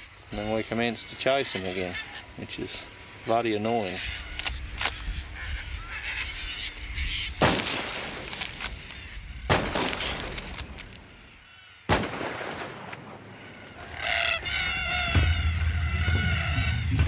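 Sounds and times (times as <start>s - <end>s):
rifle shots with echo: 7.4s - 8.7s, 9.5s - 10.5s, 11.9s - 13.2s.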